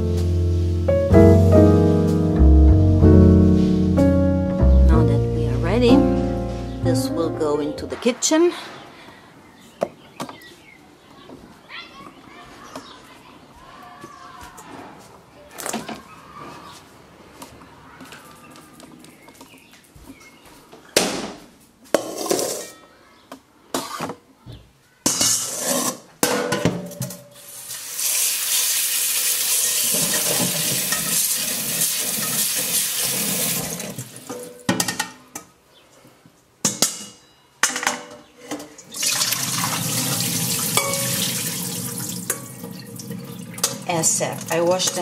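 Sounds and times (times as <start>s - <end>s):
water splashing into colander: 27.6s - 34.4s, 38.8s - 45.0s.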